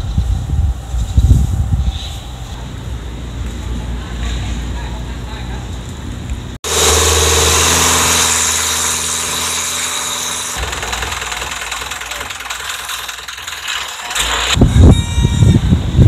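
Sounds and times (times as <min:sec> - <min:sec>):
wind: 0:00.0 - 0:16.0
boat engine running: 0:06.7 - 0:09.6, 0:10.4 - 0:14.9.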